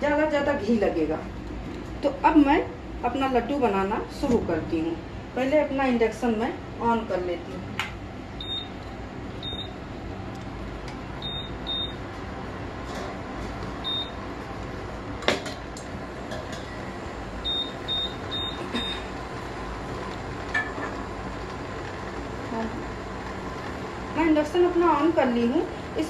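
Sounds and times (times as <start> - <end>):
cooktop control beeps: 8.4 - 8.8, 9.4 - 9.8, 11.2 - 12.0, 13.8 - 14.2, 16.6 - 19.2.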